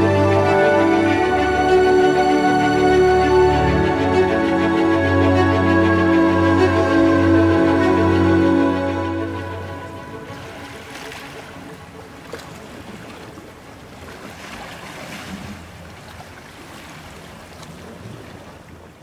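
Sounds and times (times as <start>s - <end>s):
waves lapping on rocky shore: 9.6s - 19.0s.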